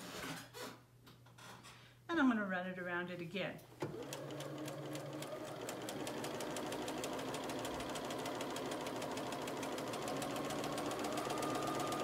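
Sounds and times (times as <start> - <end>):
sewing machine stitching: 3.8 - 12.0.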